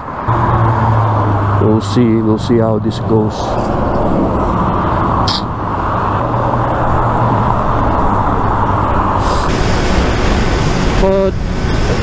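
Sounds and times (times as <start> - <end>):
freeway traffic rushing: 0.0 - 12.0
sharp hiss of passing vehicle: 9.0 - 12.0.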